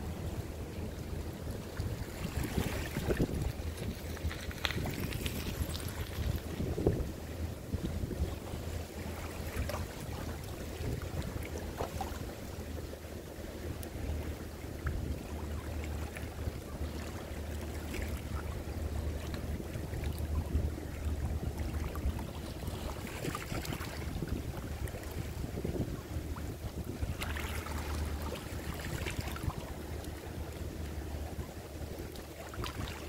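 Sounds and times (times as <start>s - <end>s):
water lapping: 0.0s - 33.0s.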